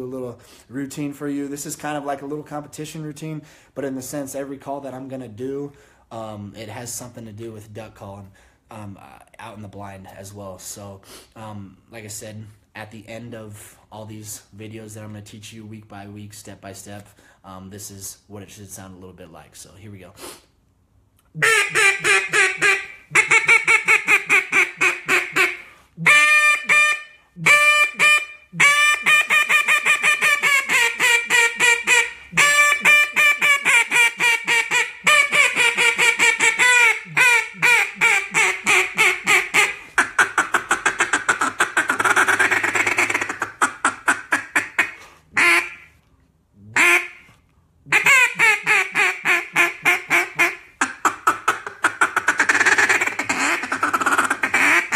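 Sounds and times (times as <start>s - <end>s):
fast rough duck call chatter: 21.4s - 45.9s, 47.9s - 54.9s
duck call quacks: 21.4s - 46.0s, 46.7s - 47.3s, 47.9s - 54.9s.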